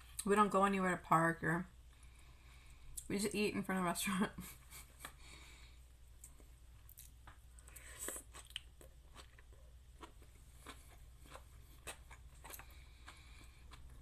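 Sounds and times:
person chewing with crunches: 6.2 - 14.0.

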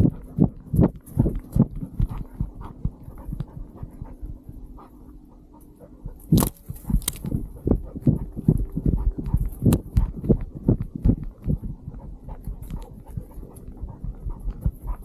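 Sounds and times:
paws thudding on gravelly dirt: 0.0 - 15.0.

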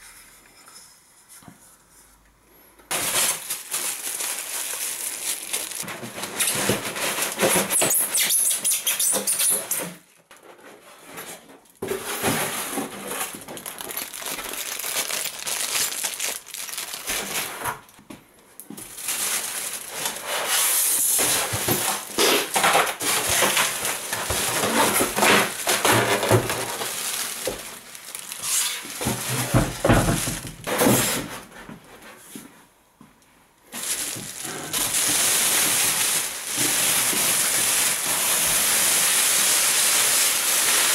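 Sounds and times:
plastic bag crinkling: 2.9 - 8.6, 12.0 - 18.0, 18.8 - 30.4, 33.7 - 40.9
polystyrene foam being moved: 2.9 - 17.9, 18.8 - 31.9, 33.7 - 40.9.

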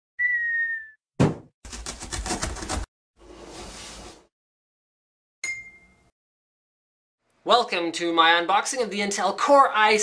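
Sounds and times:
cartoon thump: 1.2 - 1.5.

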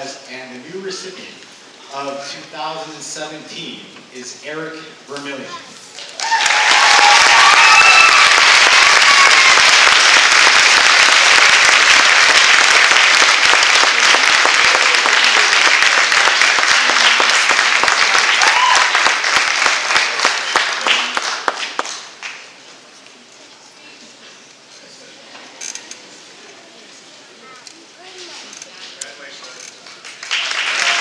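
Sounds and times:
people cheering: 6.0 - 21.9, 30.2 - 31.0
audience applauding: 6.0 - 22.6, 29.6 - 31.0.

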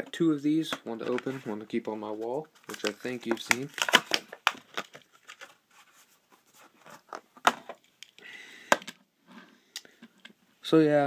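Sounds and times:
packaging rustle: 2.6 - 7.7.

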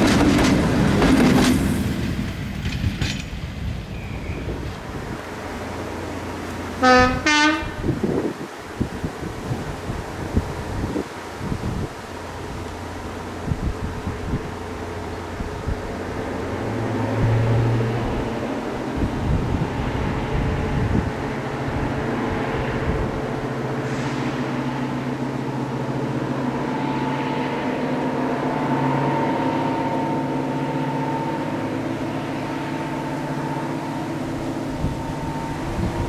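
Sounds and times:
diesel locomotive engine droning: 0.0 - 36.0
high whistling tone: 32.7 - 36.0.

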